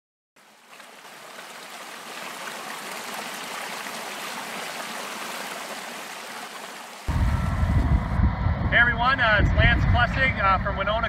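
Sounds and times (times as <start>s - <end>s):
creek water running over rocks: 0.4s - 7.1s.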